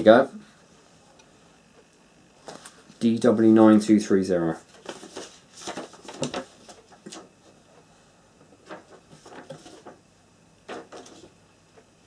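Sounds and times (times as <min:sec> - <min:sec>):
paper pages rustling: 0:04.6 - 0:07.6, 0:08.5 - 0:10.0, 0:10.6 - 0:11.4.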